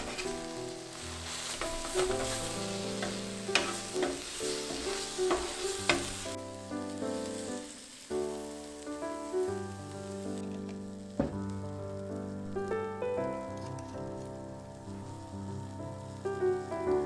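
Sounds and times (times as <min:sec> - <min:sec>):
metal spatula scraping griddle: 0:00.0 - 0:06.3
meat sizzling on griddle: 0:00.0 - 0:17.0.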